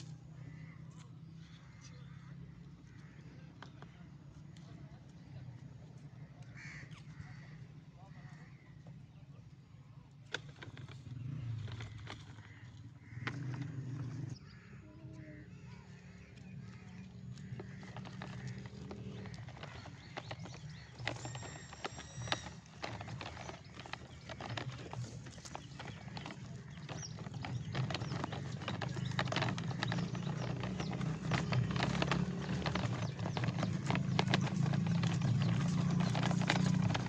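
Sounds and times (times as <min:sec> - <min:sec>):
crows cawing: 0:06.5 - 0:07.6
toy truck wheels crunching dirt: 0:10.3 - 0:14.7, 0:16.1 - 0:37.0.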